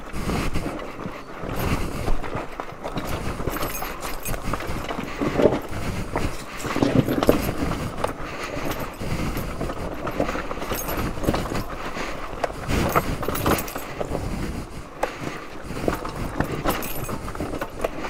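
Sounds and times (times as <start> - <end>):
rocks clattering under tyres: 0.7 - 14.2.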